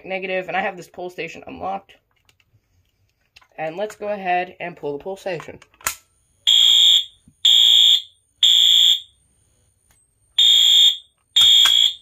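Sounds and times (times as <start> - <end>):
fire alarm beeping: 6.4 - 9.2, 10.3 - 12.0.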